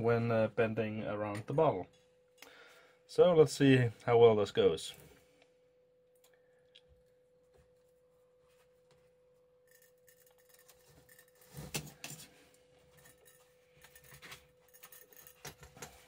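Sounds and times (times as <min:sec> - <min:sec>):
metal tube rubbing and creaking: 0:09.7 - 0:11.9, 0:12.9 - 0:16.0.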